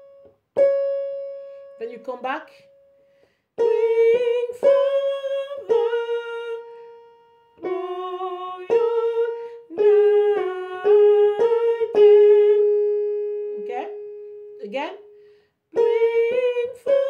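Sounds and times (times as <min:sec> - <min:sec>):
keyboard notes: 0:00.0 - 0:17.0
woman singing a hymn: 0:03.6 - 0:15.1, 0:15.7 - 0:17.0.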